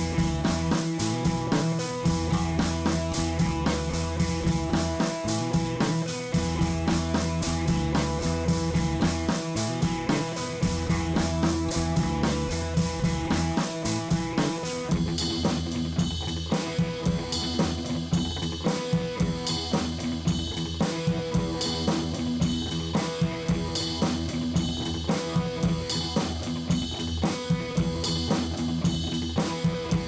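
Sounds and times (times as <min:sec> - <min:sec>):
held guitar notes: 0:00.0 - 0:15.1
drum kit playing a beat: 0:00.0 - 0:30.0.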